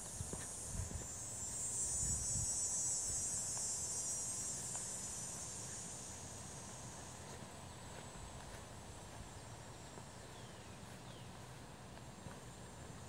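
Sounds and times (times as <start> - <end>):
soft footsteps: 0.0 - 1.6, 6.7 - 13.0
meadow insects chorus: 0.0 - 13.0.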